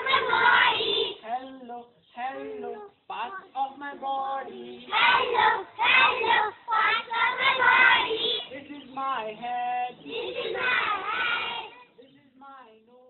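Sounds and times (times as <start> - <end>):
children singing: 0.0 - 1.3, 2.2 - 8.9, 9.8 - 12.0.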